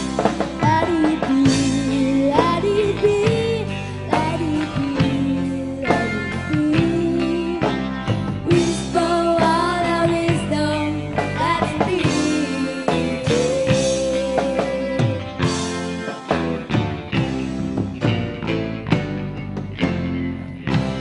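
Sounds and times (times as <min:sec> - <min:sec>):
bass guitar: 0:00.0 - 0:21.0
drum kit: 0:00.0 - 0:21.0
electric guitar: 0:00.0 - 0:21.0
woman singing: 0:00.1 - 0:15.6.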